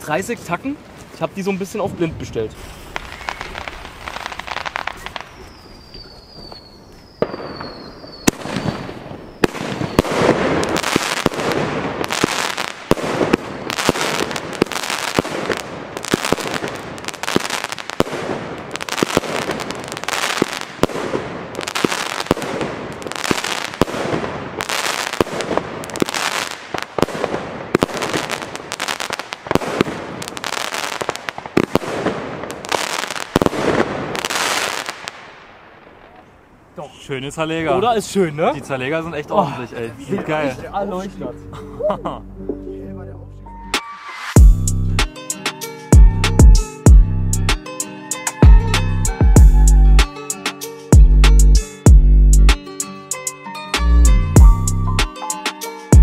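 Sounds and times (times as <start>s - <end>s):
firework crackle: 0.0s - 36.4s
firework whistles: 2.5s - 12.7s, 43.8s - 44.4s
firework shots and bursts: 2.5s - 35.6s.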